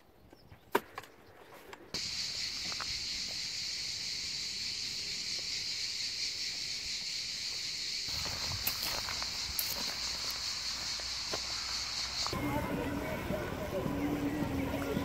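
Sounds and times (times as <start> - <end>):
insects buzzing: 2.0 - 12.4.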